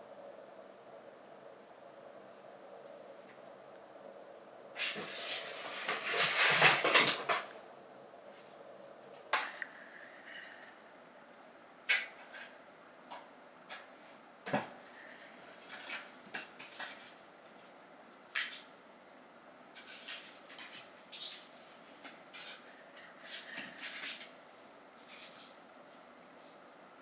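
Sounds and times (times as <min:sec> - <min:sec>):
cardboard scraping and rustling: 0:04.8 - 0:07.5.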